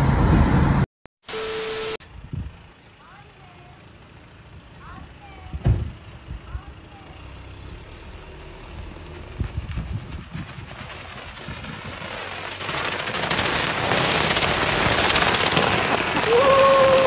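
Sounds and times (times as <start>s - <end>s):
stretch wrap unspooling crackle: 9.1s - 17.0s.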